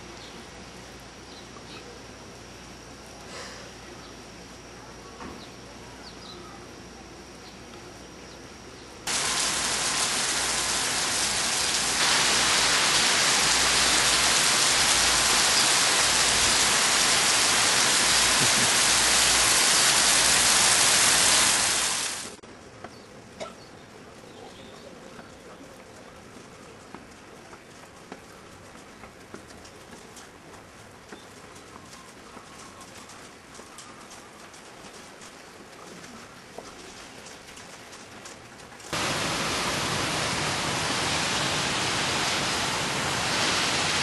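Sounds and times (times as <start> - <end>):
heavy rain hissing: 9.1 - 22.4, 38.9 - 44.0.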